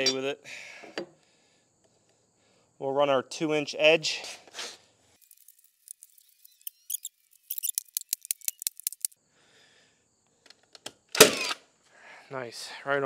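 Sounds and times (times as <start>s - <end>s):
rapid small clicks: 5.2s - 9.2s.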